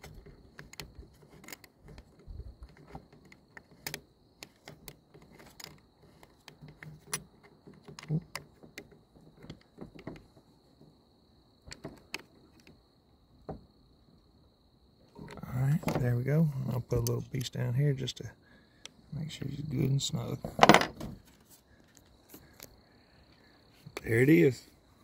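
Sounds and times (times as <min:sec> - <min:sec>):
gun handling noise: 0:20.4 - 0:22.8.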